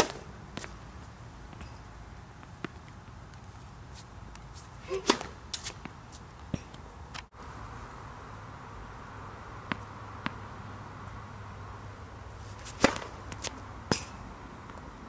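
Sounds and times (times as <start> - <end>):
tennis ball bouncing on hard court: 0.0 - 0.8, 4.9 - 6.8, 12.6 - 14.8.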